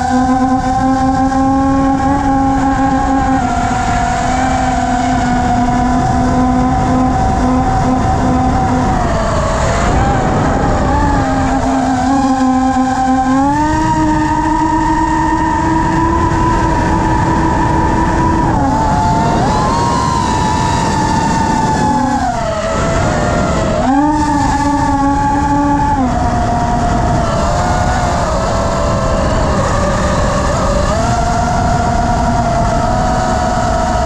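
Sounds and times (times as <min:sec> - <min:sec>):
drone motors and propellers whining: 0:00.0 - 0:34.0
rush of air: 0:08.0 - 0:12.2.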